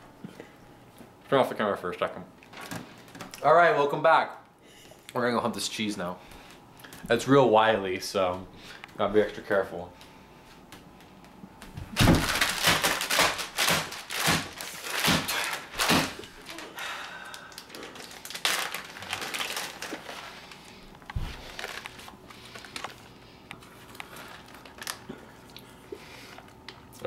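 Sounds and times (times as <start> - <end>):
plastic bag crinkling: 12.0 - 25.6.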